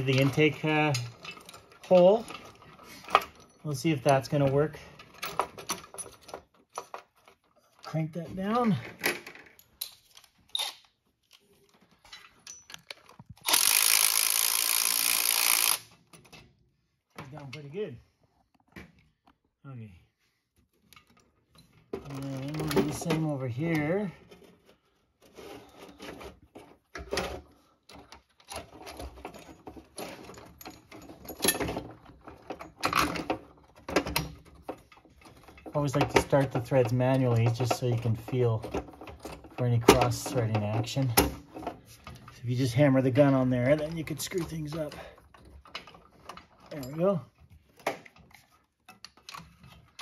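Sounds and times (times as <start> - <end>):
chain links clinking and rattling: 0.0 - 14.8, 28.3 - 47.5
power ratchet running: 13.4 - 15.9.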